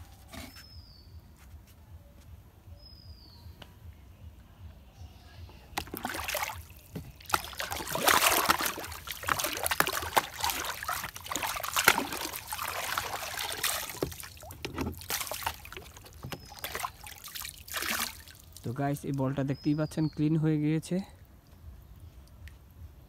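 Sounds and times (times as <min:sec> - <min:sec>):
water sloshing in a plastic tub: 0:05.6 - 0:19.6.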